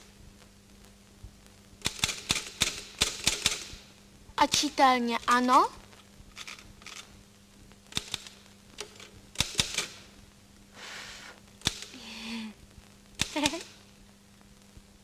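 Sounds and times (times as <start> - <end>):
low steady hum: 0.0 - 15.0
soft hiss: 0.0 - 15.0
sharp clicks: 1.8 - 3.8, 7.9 - 10.0, 11.6 - 12.0, 13.2 - 13.7.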